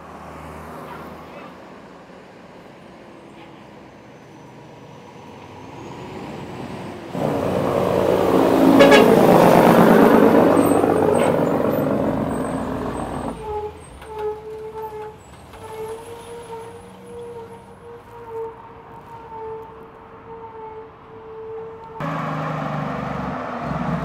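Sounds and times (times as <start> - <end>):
heavy truck driving past: 3.3 - 14.1, 22.0 - 24.0.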